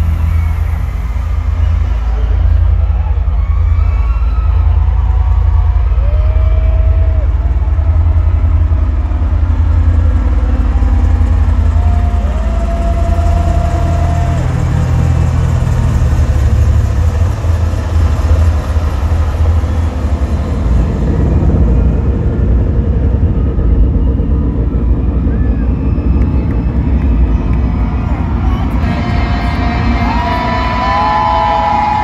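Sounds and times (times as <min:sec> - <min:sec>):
distorted live rock music: 0:26.3 - 0:32.0.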